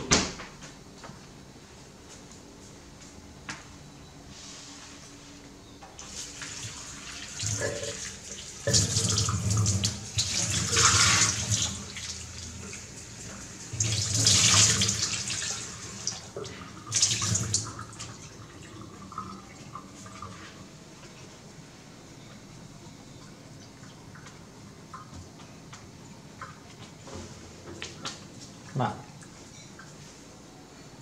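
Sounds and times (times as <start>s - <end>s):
tap water running into bowl: 6.0s - 20.3s.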